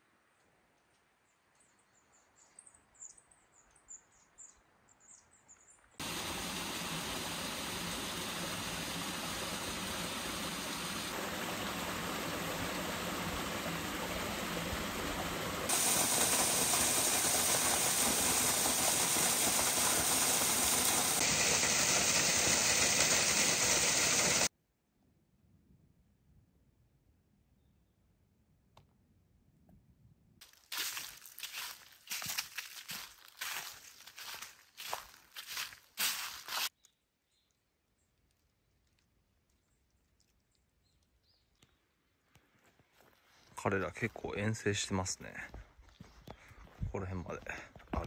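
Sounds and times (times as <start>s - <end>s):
running water rushing: 6.0s - 24.5s.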